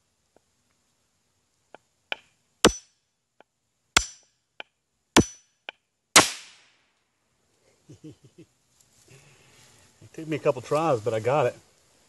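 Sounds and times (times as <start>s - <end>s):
hammer striking metal: 2.6s - 2.9s, 4.0s - 4.3s, 5.2s - 5.5s.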